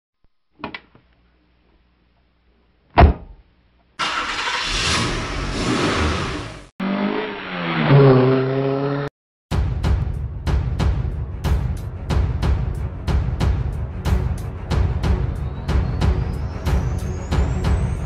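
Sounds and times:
car engine revving: 4.0s - 9.1s.

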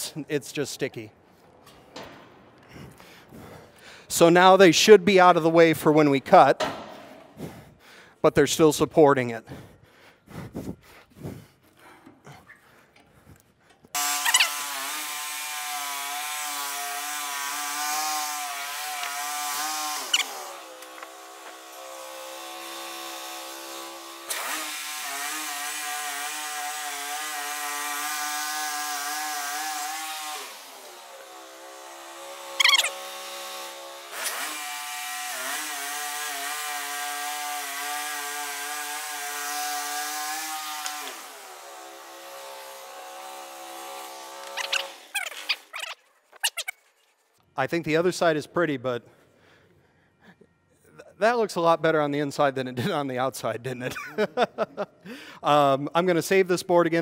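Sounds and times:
sawmill engine running: 14.0s - 45.7s
band blade hissing in wood: 18.6s - 21.0s, 32.5s - 33.1s, 44.0s - 46.7s.

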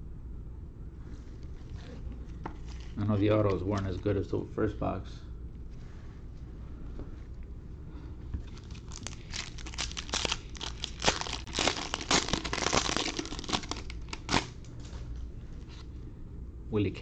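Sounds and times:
wrapper crinkling and tearing: 2.6s - 3.0s, 8.4s - 14.6s.

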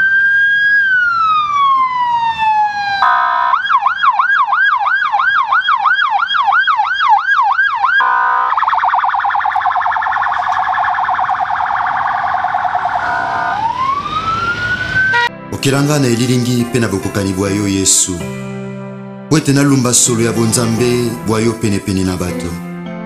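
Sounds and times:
electronic siren yelping and warbling: 0.0s - 15.3s.

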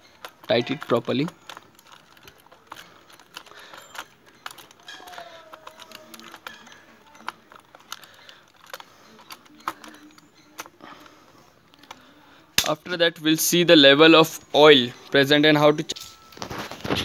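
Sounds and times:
screwdriver clicking on metal: 0.0s - 10.8s.

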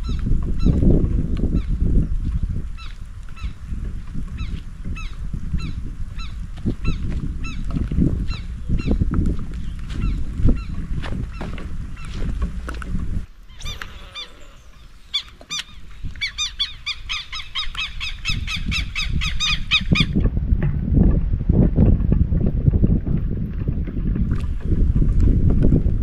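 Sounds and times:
wind rumble on microphone: 0.0s - 26.0s
bird calling: 4.4s - 9.0s, 9.6s - 20.2s.

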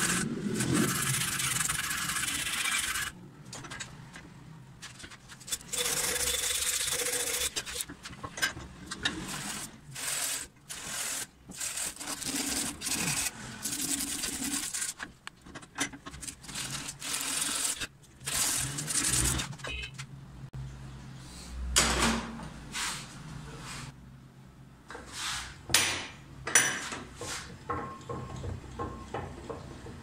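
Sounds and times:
rasping rust scraping on steel: 0.0s - 3.2s.

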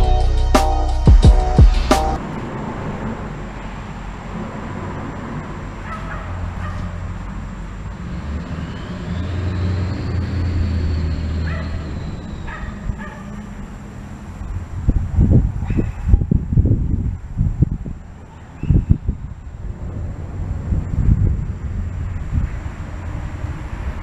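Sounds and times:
music track: 0.0s - 2.2s
low rumble of traffic on bridge: 2.2s - 24.0s.

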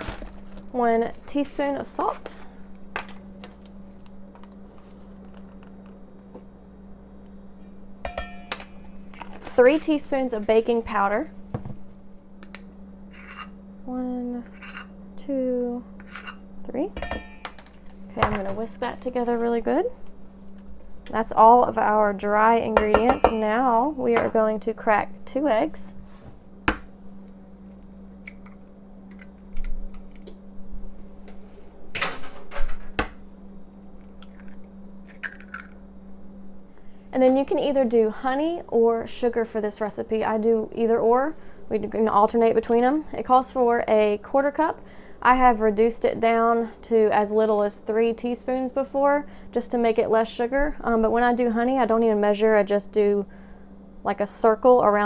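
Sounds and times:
steady low hum: 0.0s - 55.0s
metal spoon knocking on bowl: 8.1s - 8.6s, 17.0s - 17.6s, 22.8s - 23.4s
eggshells cracking against bowl: 34.0s - 35.8s.

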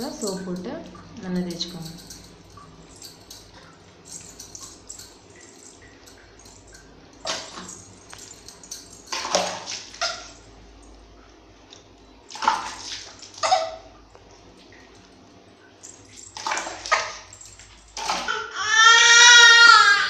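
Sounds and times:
water splashing: 8.6s - 10.4s, 12.3s - 13.9s, 16.3s - 18.4s
baby crying: 18.3s - 20.0s.

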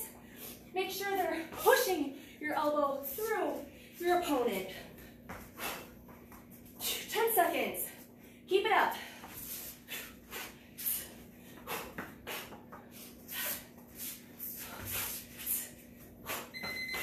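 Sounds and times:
interval timer beeping: 16.6s - 17.0s.

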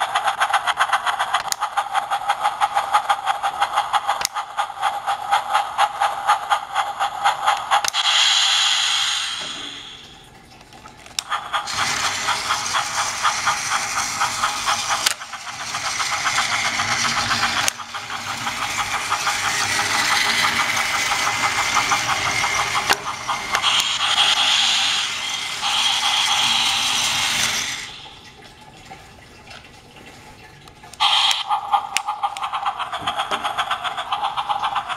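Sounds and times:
rattling clicks of gears and wheels: 0.0s - 8.3s, 10.6s - 28.2s
toy train motor whirring: 0.0s - 10.1s, 11.1s - 28.2s, 31.0s - 34.9s.

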